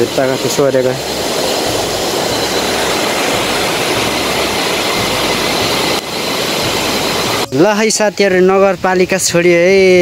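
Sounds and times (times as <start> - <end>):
stream rushing over rocks: 1.0 - 7.5.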